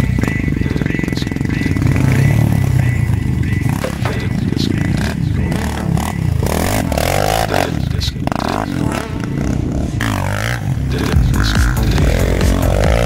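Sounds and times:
quad bike engine revving: 0:00.0 - 0:13.0.

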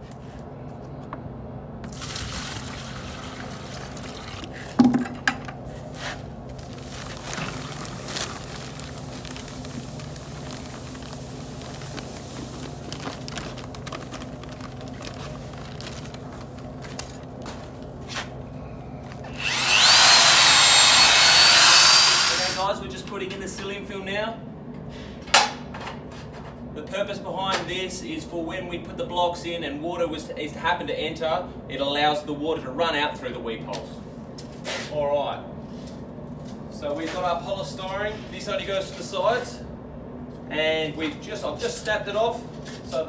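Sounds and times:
water pouring into bucket: 0:01.9 - 0:04.6.

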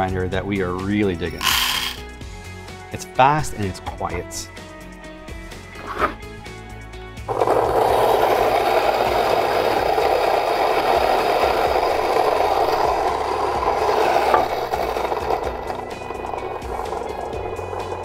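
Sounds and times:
coffee grinder grinding beans: 0:01.3 - 0:02.0, 0:07.2 - 0:18.0.

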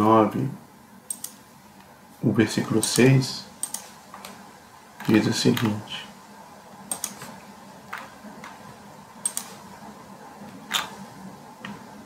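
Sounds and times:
computer mouse clicks: 0:01.1 - 0:01.4, 0:02.8 - 0:04.4, 0:06.9 - 0:08.6, 0:09.2 - 0:09.6.

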